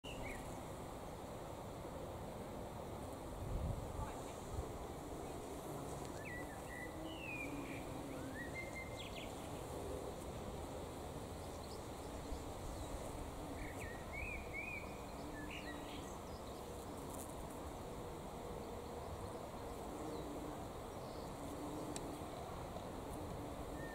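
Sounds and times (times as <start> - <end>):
bees buzzing: 3.0 - 23.9
bird whistling song: 6.2 - 9.3.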